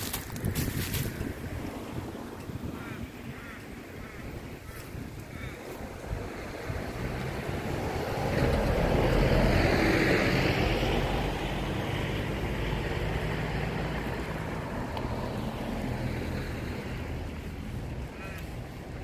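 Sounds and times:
car passing: 5.4 - 19.0.

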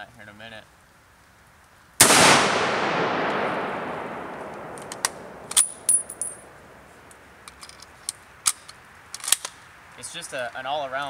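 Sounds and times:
rifle shot echoing: 2.0 - 7.2
rifle bolt metallic clicks: 4.0 - 9.6.

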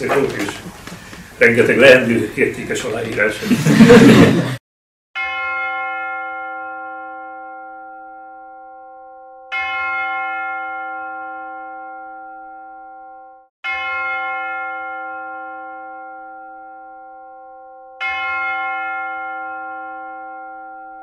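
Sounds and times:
bell tolling: 5.2 - 21.0.

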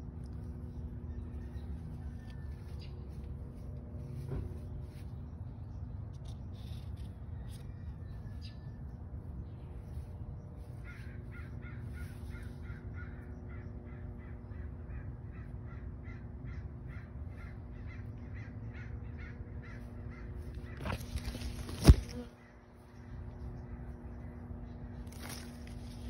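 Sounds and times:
steady low hum: 0.0 - 26.0
animal cawing call: 10.8 - 22.6.

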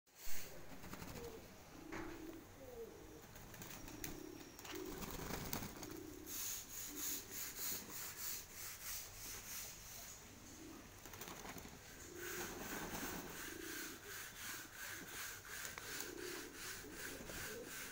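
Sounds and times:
pigeons cooing: 0.3 - 17.9
wings flapping rapidly: 0.4 - 1.5, 3.2 - 6.5, 10.9 - 13.8, 15.0 - 17.9.

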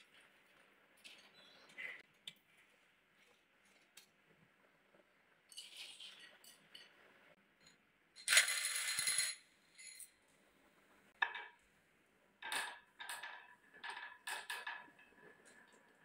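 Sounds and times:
glass marbles clattering on wood: 8.2 - 10.2.

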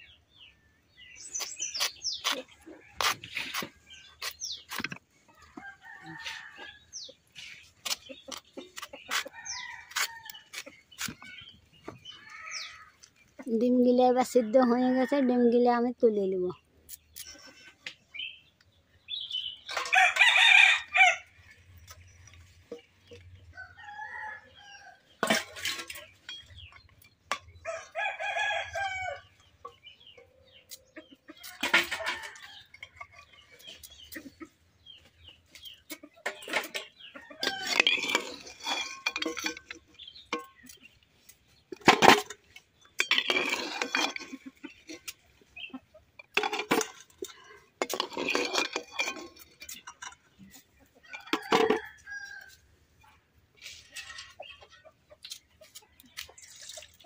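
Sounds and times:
rooster crowing: 19.9 - 21.3
cooking utensils clinking: 36.2 - 40.9, 41.7 - 45.2, 46.2 - 50.3.

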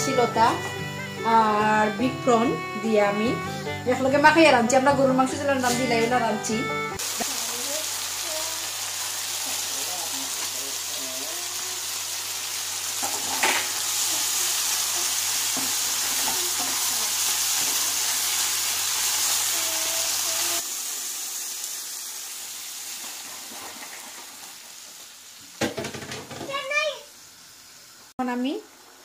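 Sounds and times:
food sizzling in a wok: 5.4 - 29.0
curry simmering hiss: 6.9 - 29.0
spatula scraping a wok: 15.5 - 18.1.

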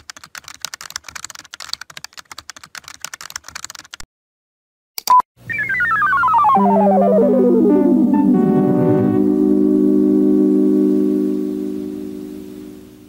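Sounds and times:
fast typing on keyboard: 0.0 - 4.0
music with falling synth notes: 5.5 - 13.0.

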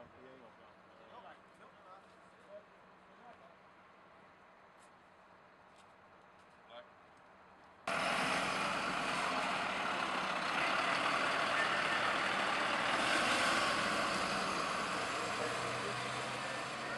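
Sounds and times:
fire engine diesel engine: 7.9 - 16.9.

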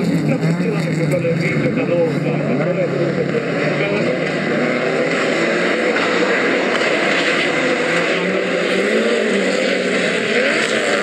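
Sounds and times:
rally car engines revving: 0.0 - 11.0.

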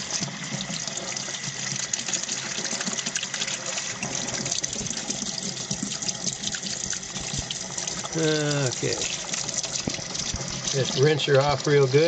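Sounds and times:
hose water splashing on metal: 0.0 - 12.0.

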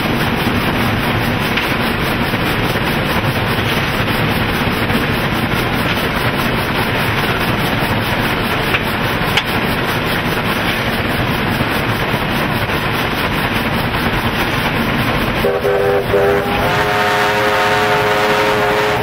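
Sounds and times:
steam locomotive roar: 0.0 - 19.0
steam locomotive chime whistle: 15.4 - 19.0.

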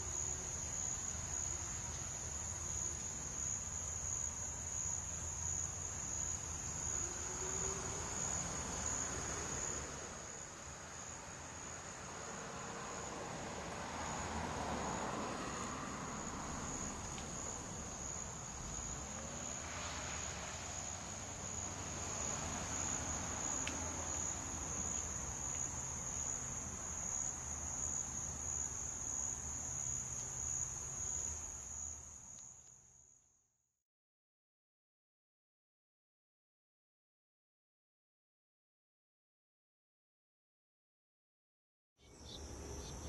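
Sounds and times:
high-pitched insect trill: 0.0 - 12.0, 42.0 - 43.0.

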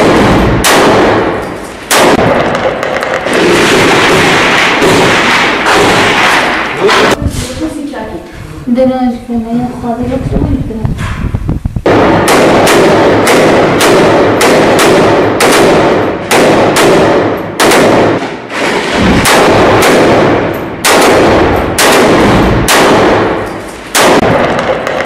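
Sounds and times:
rifle shots with ringing echo: 0.0 - 6.8, 11.9 - 25.0.

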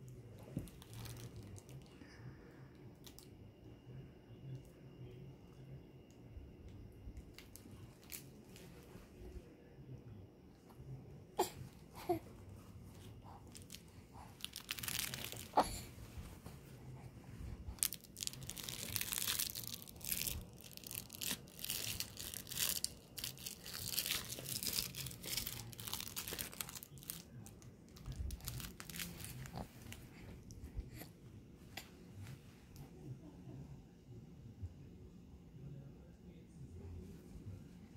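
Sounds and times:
baby toy crinkling and rustling: 0.3 - 2.1, 3.0 - 3.3, 7.2 - 9.4, 11.4 - 31.1.

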